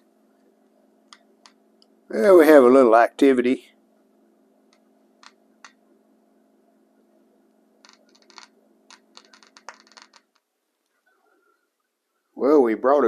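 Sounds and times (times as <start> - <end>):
radio speaker crackles and pops: 4.7 - 5.8, 7.8 - 11.0.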